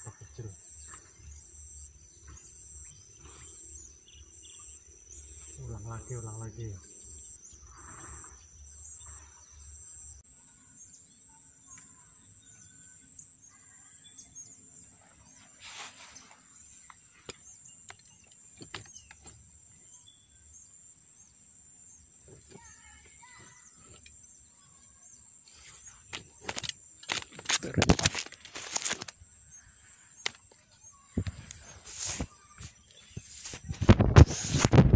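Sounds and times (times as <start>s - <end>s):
bird chirps: 0.0s - 27.0s
insect chorus: 0.0s - 34.9s.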